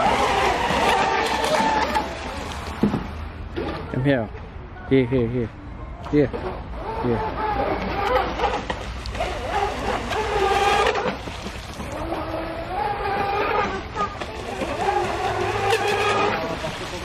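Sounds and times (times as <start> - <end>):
toy speedboat motor whining: 0.0 - 2.4, 6.5 - 17.0.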